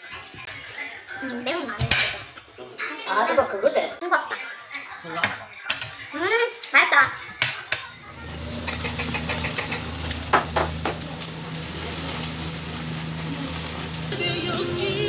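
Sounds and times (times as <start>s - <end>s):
meat sizzling on a grill: 7.7s - 15.0s.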